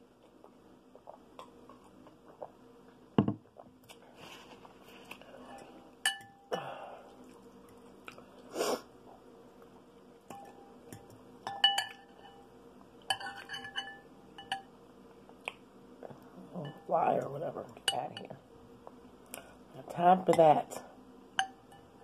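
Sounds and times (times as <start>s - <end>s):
utensil clinking against glass bowl: 11.4s - 12.4s, 13.1s - 14.7s.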